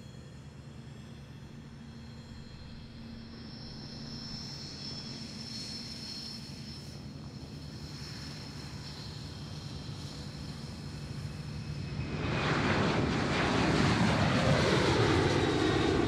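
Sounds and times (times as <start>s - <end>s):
airplane engines rumbling and whining: 0.0s - 16.0s.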